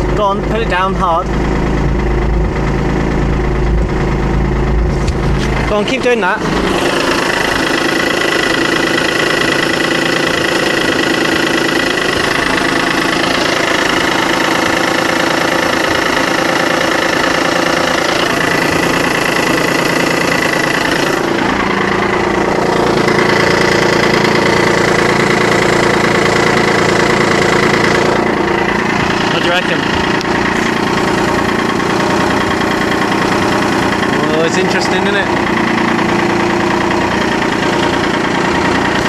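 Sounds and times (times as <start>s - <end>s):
rotary engine idling with whine: 0.0s - 39.0s
mechanical rattling: 1.3s - 39.0s.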